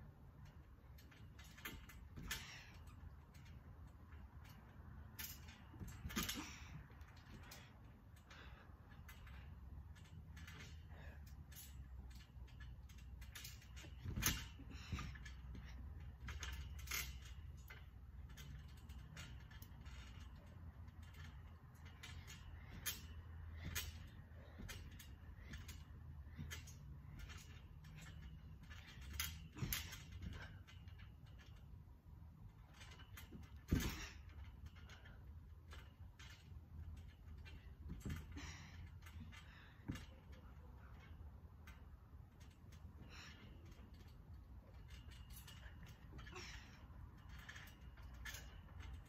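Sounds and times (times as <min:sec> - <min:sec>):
trampoline springs creaking: 0:00.0 - 0:49.0
trampoline mat knocking: 0:33.7 - 0:34.1.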